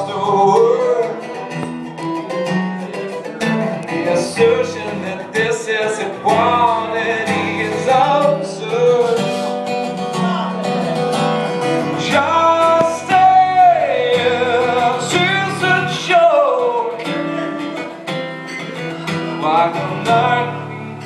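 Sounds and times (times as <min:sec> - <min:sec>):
strummed guitar: 0:00.0 - 0:21.0
person singing long notes: 0:11.8 - 0:17.9.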